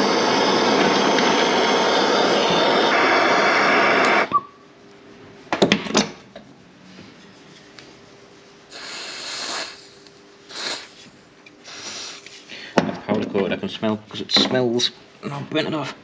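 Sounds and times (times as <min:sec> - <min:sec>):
short hissing bursts: 0:08.7 - 0:12.5.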